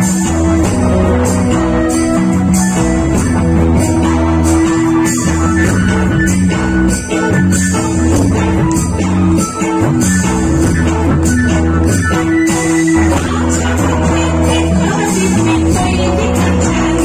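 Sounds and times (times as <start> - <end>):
drum kit: 0.0 - 17.0
electric guitar: 0.0 - 17.0.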